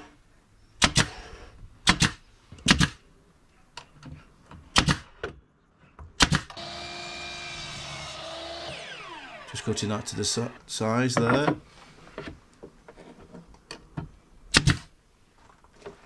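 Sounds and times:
nail gun firing: 0.8s - 1.2s, 1.8s - 3.0s, 4.8s - 5.1s, 6.2s - 10.5s, 14.5s - 14.9s
mitre saw running: 6.6s - 10.6s.

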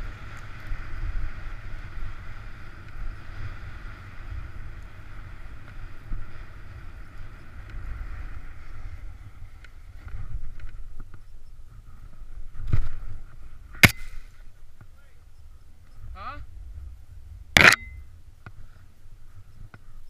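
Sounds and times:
snowboard scraping over snow: 0.0s - 10.6s
wind rumble on microphone: 0.0s - 20.0s.

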